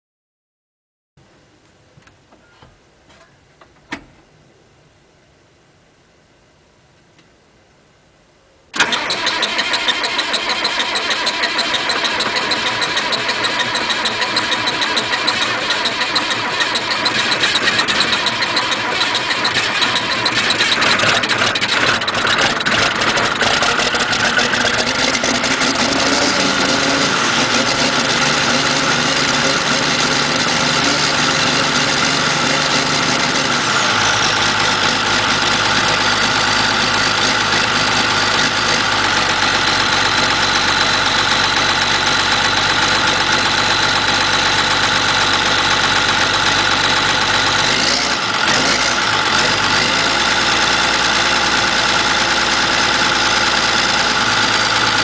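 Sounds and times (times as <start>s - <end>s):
diesel tractor engine starting: 8.7s - 55.0s.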